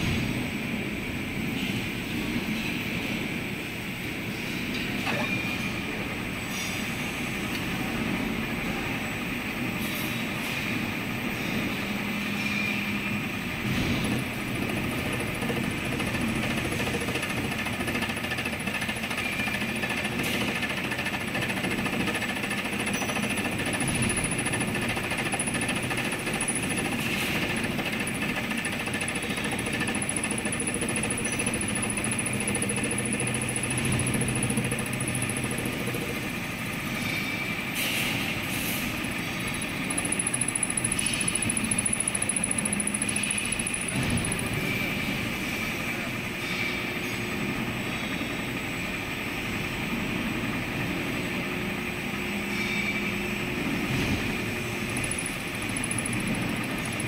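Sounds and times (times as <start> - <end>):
milling machine cutter chattering on metal: 14.4 - 36.4, 39.4 - 44.8, 54.8 - 57.0.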